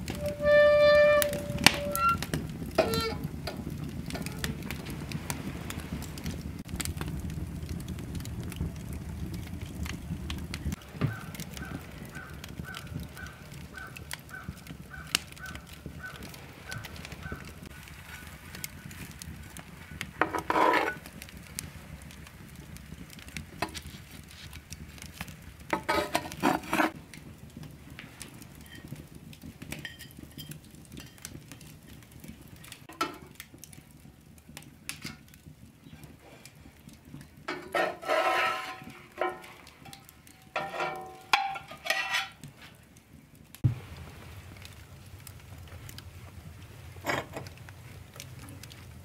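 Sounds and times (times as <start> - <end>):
hearth fire noise: 0.0 - 49.0
metal spatula scraping frying pan: 0.1 - 3.3, 20.2 - 21.1, 25.7 - 27.0, 37.5 - 42.5.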